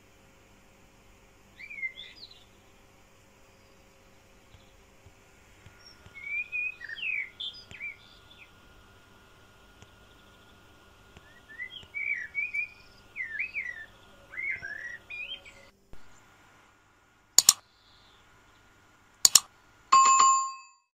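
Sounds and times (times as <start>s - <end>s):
birds chirping: 1.6s - 2.8s, 5.7s - 8.7s, 9.8s - 16.3s
double clicks: 17.4s - 17.6s, 19.3s - 19.5s
bell ding: 20.0s - 20.9s.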